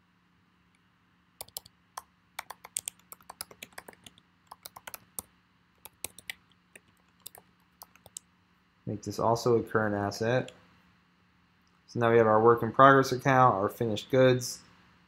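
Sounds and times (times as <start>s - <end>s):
keyboard typing: 1.4s - 8.2s.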